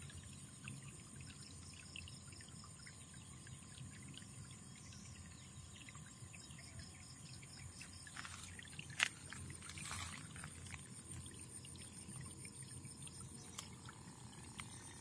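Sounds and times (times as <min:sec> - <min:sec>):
faint ticks: 0:13.1 - 0:15.0.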